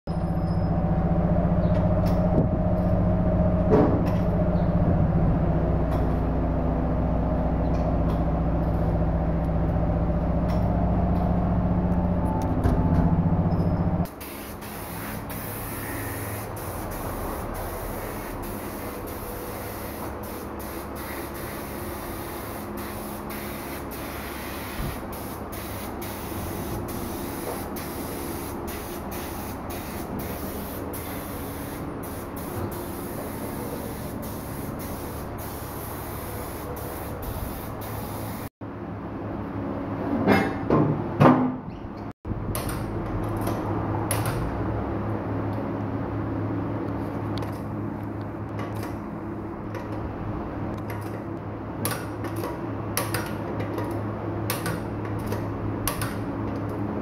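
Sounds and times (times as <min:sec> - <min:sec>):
loud machine hum: 0:00.1 - 0:14.2.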